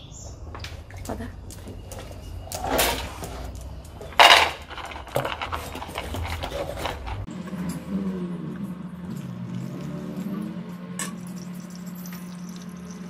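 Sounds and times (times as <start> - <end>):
dog eating from bowl: 1.6 - 7.6.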